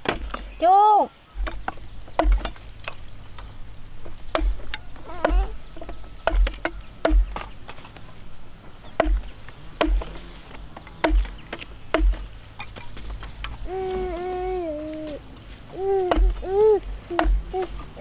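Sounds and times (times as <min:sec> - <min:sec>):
machete chopping against wood: 0:00.0 - 0:00.4, 0:01.4 - 0:03.0, 0:04.0 - 0:08.1, 0:08.9 - 0:13.6, 0:16.0 - 0:17.8
high insect drone: 0:00.1 - 0:18.0.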